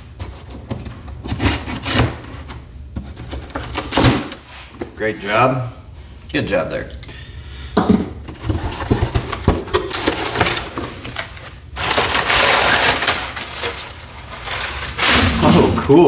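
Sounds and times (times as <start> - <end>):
packing paper crinkling: 8.4 - 15.9.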